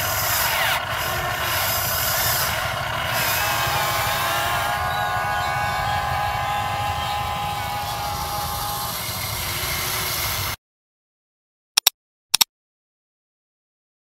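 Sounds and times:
electric motors whining: 0.0s - 10.6s
double clicks: 11.8s - 12.5s.

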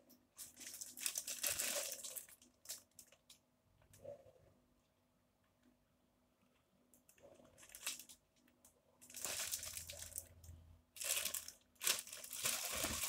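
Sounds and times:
plastic bag crinkling: 0.4s - 3.4s, 7.4s - 8.2s, 9.0s - 10.4s, 11.0s - 13.0s.

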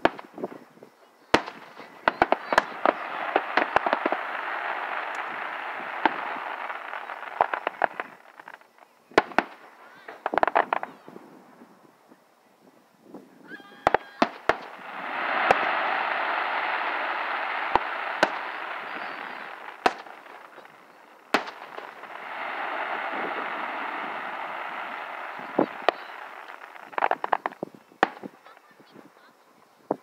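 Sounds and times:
crackling pops: 0.0s - 0.6s, 1.3s - 11.1s, 13.9s - 28.7s
distant firework bangs: 1.3s - 11.3s, 13.8s - 28.7s
firework hissing: 1.4s - 11.6s, 13.8s - 28.8s.

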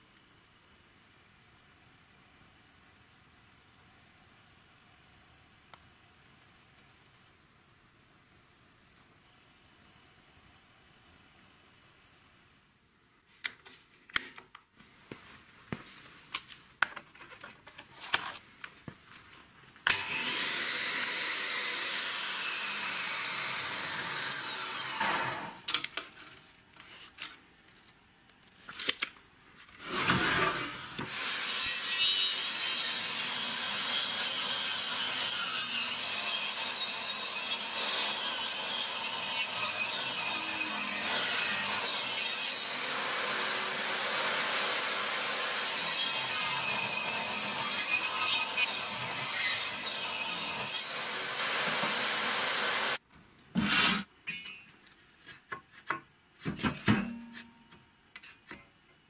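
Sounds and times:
table saw cutting wood: 19.9s - 25.6s, 29.8s - 53.0s.

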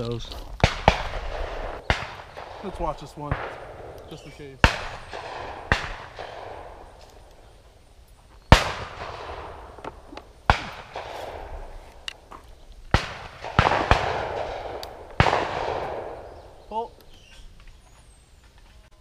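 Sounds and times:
shotgun shots echoing: 0.6s - 7.3s, 8.5s - 12.2s, 12.9s - 17.0s.

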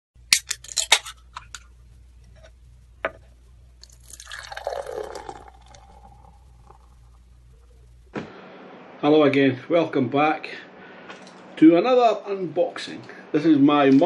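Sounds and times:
liquid pouring into a glass: 3.8s - 7.0s.

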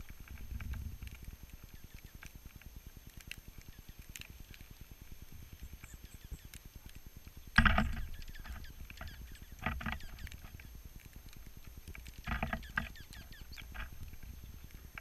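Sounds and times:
faint high bird chips: 7.8s - 10.8s, 12.3s - 14.7s.

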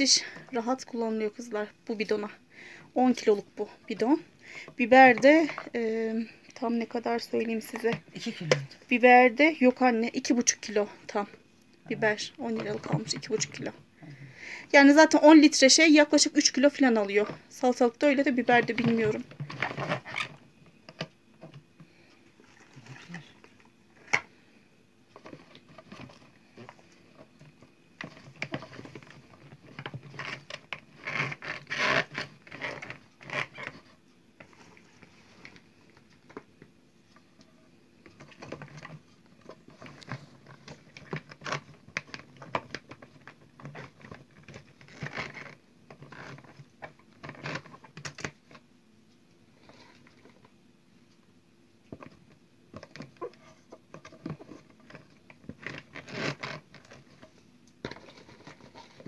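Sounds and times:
peppers scraping in plastic jar: 18.2s - 20.4s, 28.0s - 34.8s, 53.2s - 59.0s.

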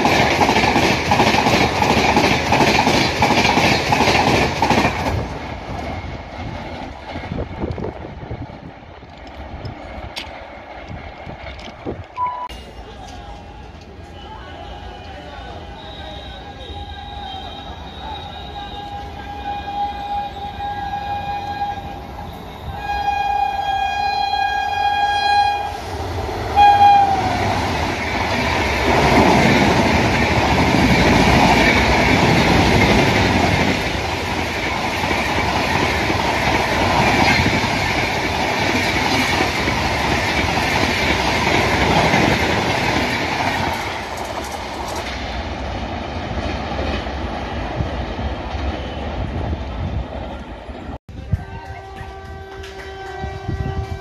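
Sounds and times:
train rushing past: 0.0s - 54.0s
locomotive horn blasts: 12.2s - 25.9s, 26.6s - 27.5s, 51.4s - 54.0s.

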